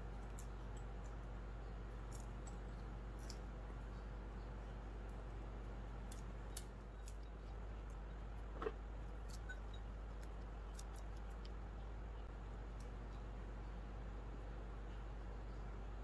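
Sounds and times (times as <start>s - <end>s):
nuts cracking and clicking: 0.0s - 3.6s, 5.9s - 11.7s
low room hum: 0.0s - 16.0s.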